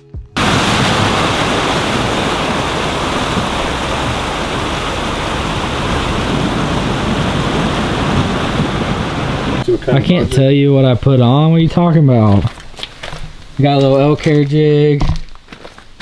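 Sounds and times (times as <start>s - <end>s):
vehicle wading through water: 0.4s - 10.2s
fast-flowing river rushing: 0.4s - 10.4s.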